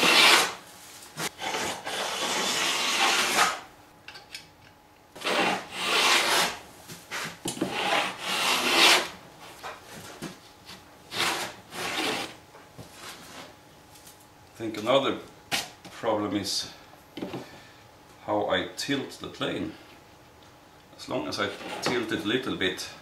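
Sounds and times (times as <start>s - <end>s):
plane blade shaving wood: 0.0s - 0.6s, 1.4s - 3.6s, 5.2s - 6.6s, 7.7s - 9.1s, 11.1s - 12.3s.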